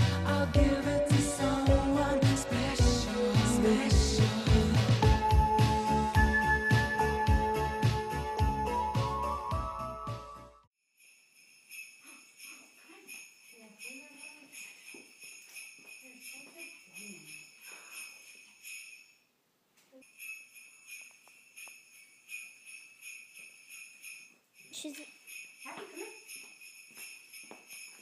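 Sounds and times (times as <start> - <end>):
small bell jingling: 10.8 - 19.3, 19.9 - 28.0.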